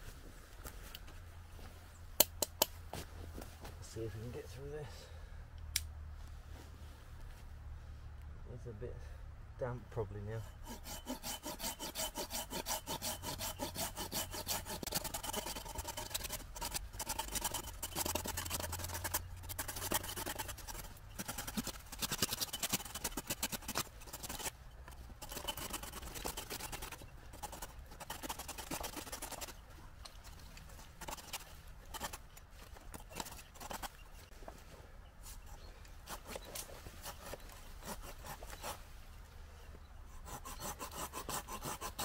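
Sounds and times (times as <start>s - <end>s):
hand saw cutting wood: 10.1s - 24.6s, 25.2s - 29.6s, 31.0s - 32.3s, 36.0s - 38.8s, 40.1s - 42.0s.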